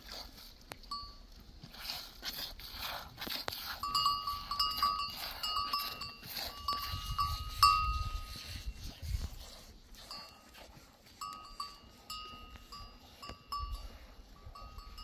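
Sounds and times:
goat bells clinking: 0.9s - 1.3s, 3.8s - 8.3s, 10.0s - 10.5s, 11.2s - 15.0s.

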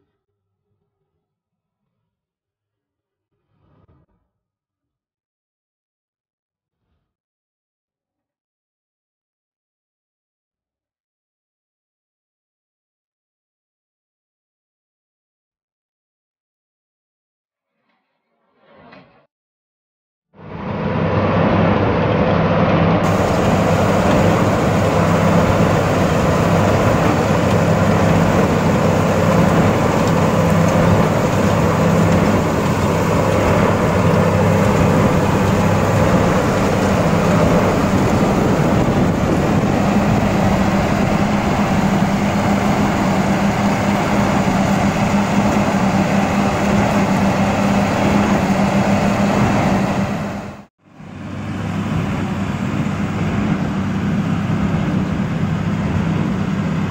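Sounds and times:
tractor engine running under load: 20.8s - 56.9s.

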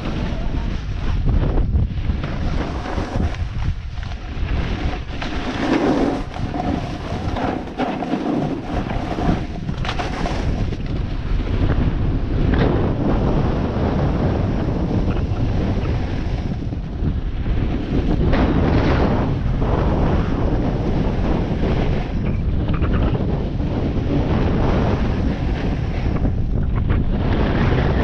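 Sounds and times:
wind buffeting microphone: 0.0s - 28.0s
ski edges scraping packed snow: 2.2s - 11.0s.

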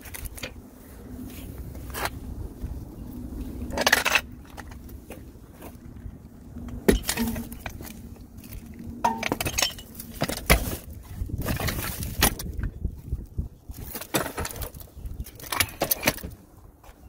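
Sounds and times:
metal jack knocking and clattering: 6.9s - 7.8s, 9.0s - 10.8s.

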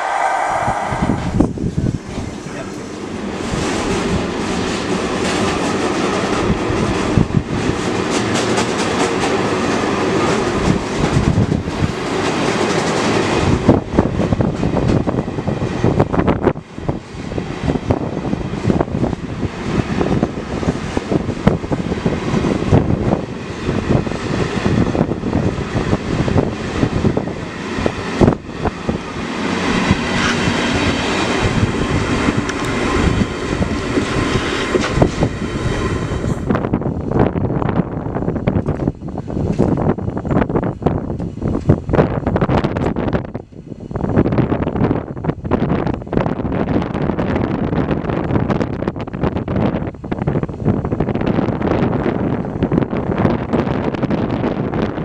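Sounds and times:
train wheels clattering over rail joints: 2.7s - 16.4s.

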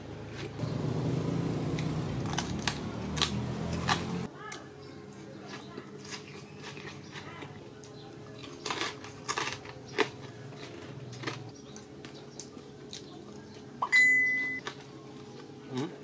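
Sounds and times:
mouth crunching crispy food: 1.8s - 4.1s, 5.2s - 13.7s
high bright ding: 13.8s - 14.6s.

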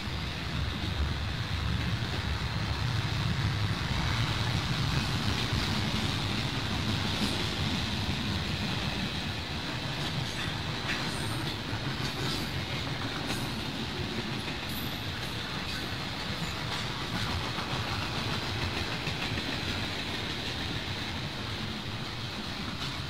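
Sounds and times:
freight train rumbling past: 0.0s - 23.0s
wheel clatter on rails: 4.1s - 23.0s.

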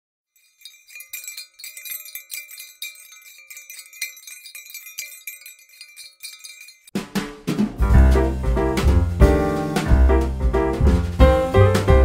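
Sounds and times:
tinkling chimes and small bells: 0.3s - 7.0s.

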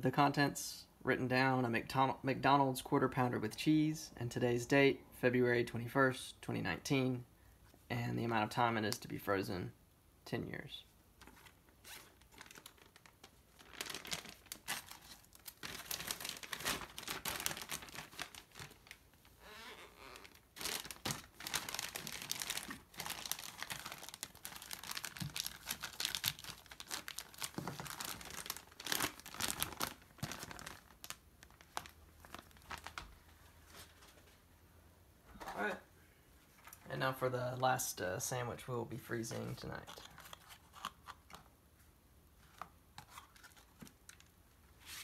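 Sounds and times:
plastic bag crinkling: 11.3s - 33.9s.

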